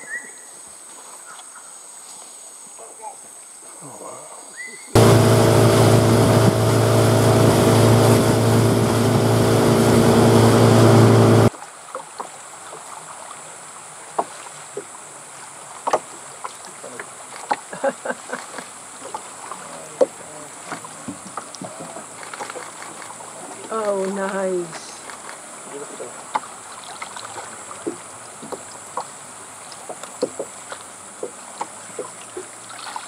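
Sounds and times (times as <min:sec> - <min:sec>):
outboard engine running: 0:05.0 - 0:11.5
water rushing: 0:05.0 - 0:11.5.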